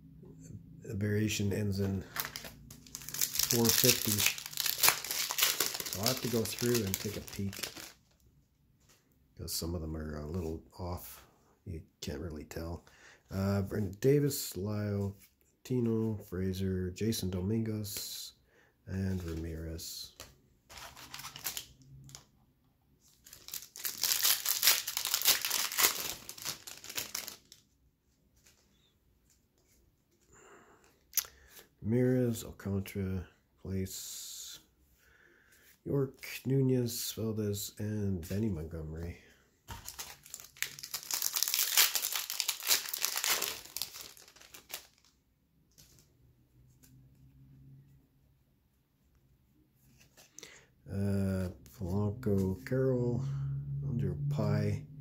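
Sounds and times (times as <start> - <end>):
cards rustling: 1.8 - 8.2, 19.0 - 22.3, 23.0 - 27.8, 39.7 - 46.1
foil wrapper crinkling and tearing: 2.0 - 8.0, 20.8 - 22.2, 23.2 - 27.6, 39.7 - 45.2.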